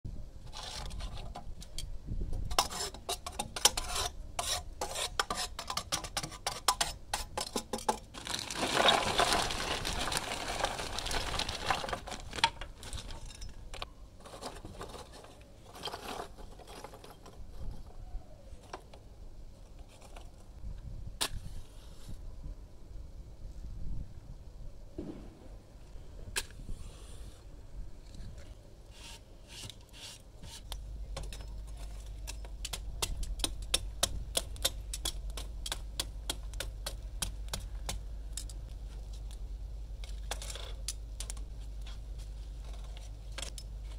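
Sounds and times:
charcoal pouring from a bag: 8.1 - 13.4.

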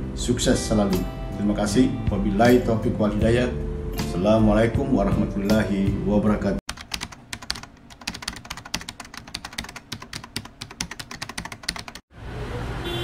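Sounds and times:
rapid keyboard typing clicks: 6.7 - 12.0.

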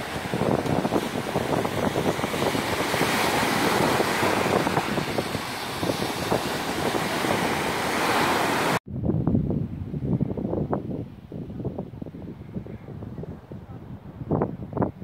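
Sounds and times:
small waves breaking: 0.0 - 8.8
wind buffeting microphone: 0.0 - 15.0.

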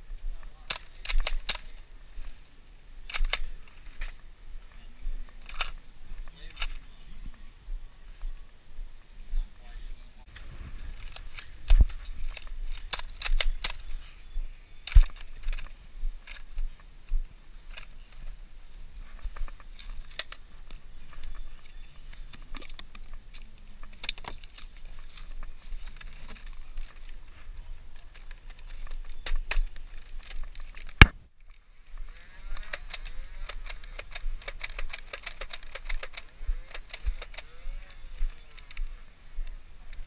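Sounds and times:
toy blaster clicks and rattles: 0.7 - 1.8, 5.4 - 5.8, 11.0 - 13.9, 31.8 - 38.8
rapid clicking: 32.4 - 38.8.

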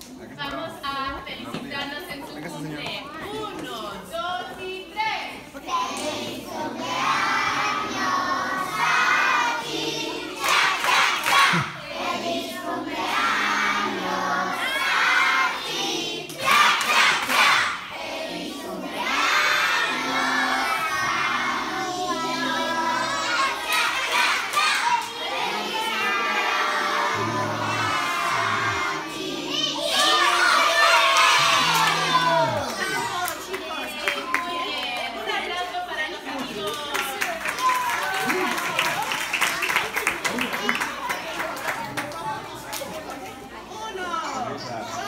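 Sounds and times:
children shouting and cheering: 22.3 - 35.1, 37.4 - 41.4.

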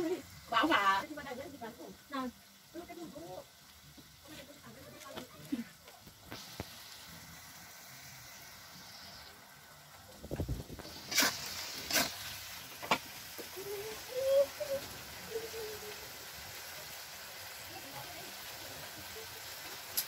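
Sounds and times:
insects sizzling in oil: 0.0 - 20.0
metal spatula scraping wok: 10.8 - 13.1.

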